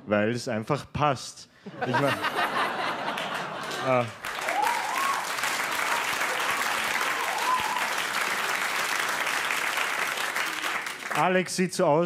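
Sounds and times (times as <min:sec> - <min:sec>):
audience applauding: 0:02.6 - 0:11.4.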